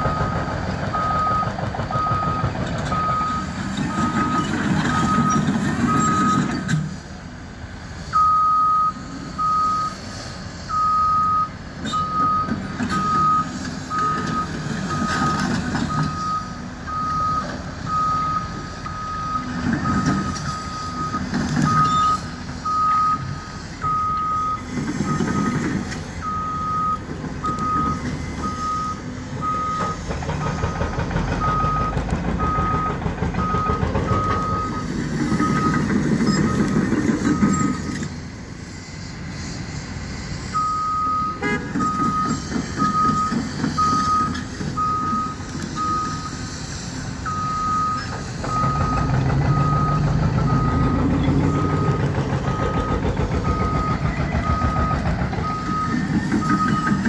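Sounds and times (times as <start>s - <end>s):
diesel machinery running: 0.0s - 57.0s
backup alarm beeping: 26.2s - 30.0s, 47.3s - 57.0s.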